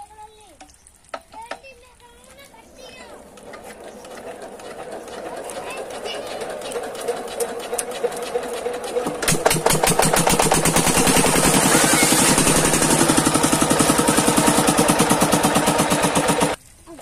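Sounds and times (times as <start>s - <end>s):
diesel engine running: 3.3s - 16.6s.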